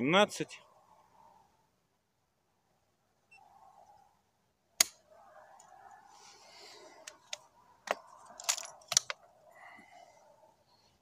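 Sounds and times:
rifle action clicking and rattling: 7.1s - 9.2s.

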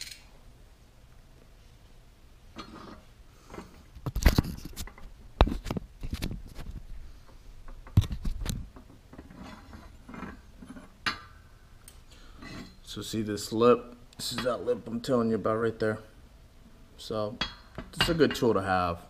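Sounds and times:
scraping and rustling: 2.6s - 11.0s.

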